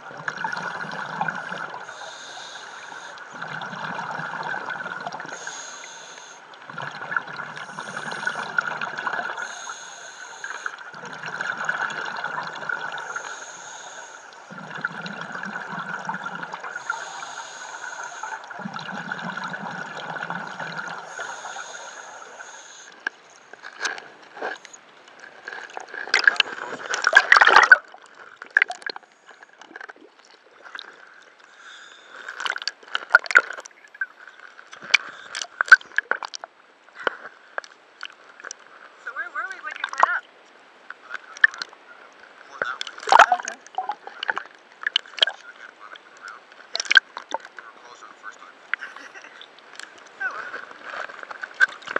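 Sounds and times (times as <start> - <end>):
diver breathing through regulator: 0.6 - 23.1, 31.5 - 32.5
splashes and knocks: 25.3 - 29.0, 32.3 - 33.7, 42.6 - 45.4.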